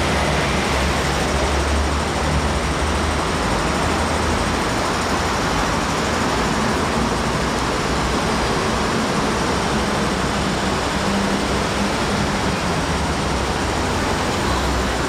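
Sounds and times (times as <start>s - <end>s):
rumbling station background noise: 0.0s - 15.0s.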